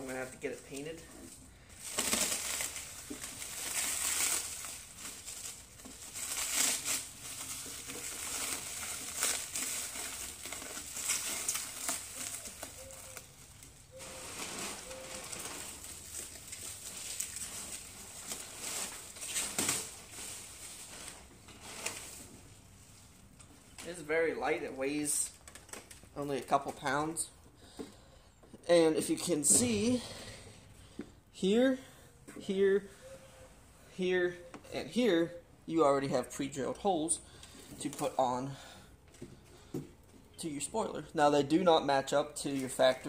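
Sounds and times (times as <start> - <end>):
plastic stretch wrap crinkling: 0.0 - 27.3.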